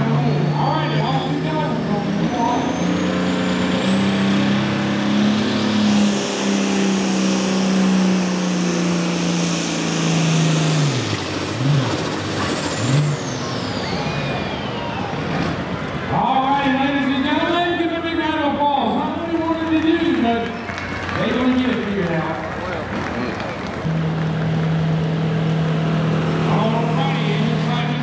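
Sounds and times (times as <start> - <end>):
diesel engine at full throttle: 0.0 - 28.0
engine throttle blips: 0.0 - 28.0
high turbo whistle: 13.4 - 15.4.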